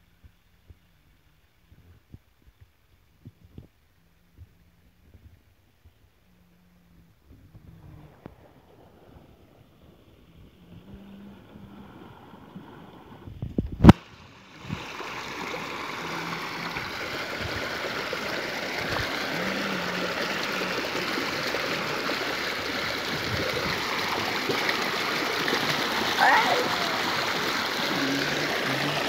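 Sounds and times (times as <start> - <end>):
water pouring into a pond: 7.6 - 29.0.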